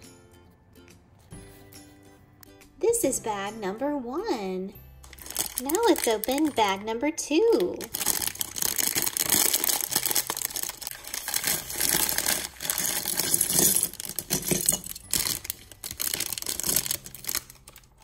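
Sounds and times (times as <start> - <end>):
plastic bag crinkling and tearing: 5.0 - 6.8, 7.5 - 18.0.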